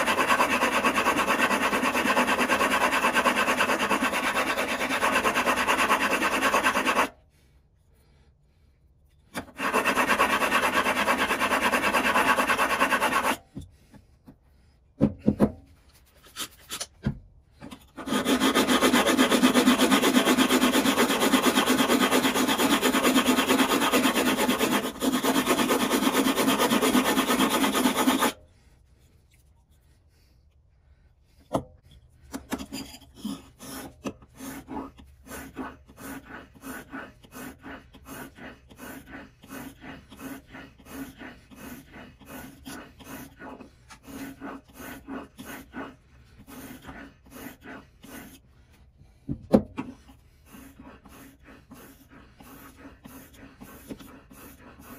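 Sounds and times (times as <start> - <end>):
stone grinding on diamond plate: 0.0 - 7.1, 9.4 - 13.4, 17.7 - 28.4
plane iron on whetstone: 0.0 - 7.2, 9.1 - 14.1, 17.6 - 28.4, 31.4 - 48.4, 49.8 - 54.9.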